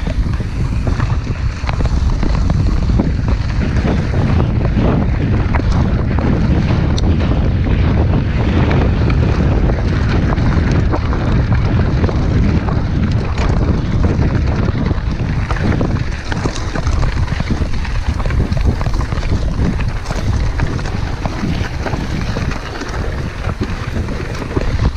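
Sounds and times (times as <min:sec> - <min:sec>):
bike knocks and rattles: 0:00.0 - 0:24.9
tyres rolling on gravel: 0:00.0 - 0:24.9
wind buffeting microphone: 0:00.0 - 0:24.9.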